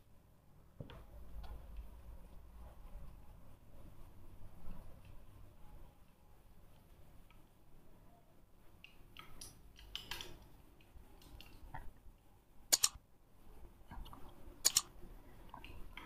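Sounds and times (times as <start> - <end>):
mouse click sound effects: 12.7 - 13.0, 14.6 - 14.9.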